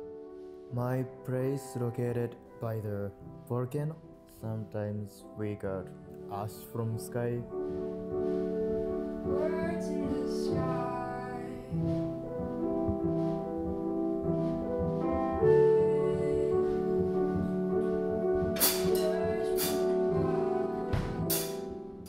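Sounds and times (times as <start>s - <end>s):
piano accompaniment: 0.0s - 22.0s
woman singing slow song: 9.2s - 12.2s, 15.4s - 18.0s, 18.8s - 21.8s.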